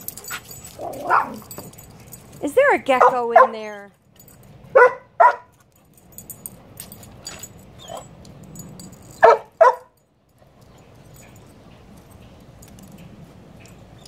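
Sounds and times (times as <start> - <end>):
dog yipping: 0.3 - 1.7, 4.7 - 5.5, 7.3 - 8.1, 9.1 - 10.0.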